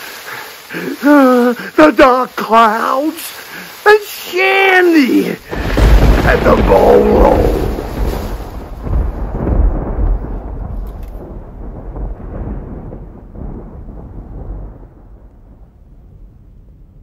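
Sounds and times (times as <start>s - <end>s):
deep rumbling: 5.4s - 17.0s.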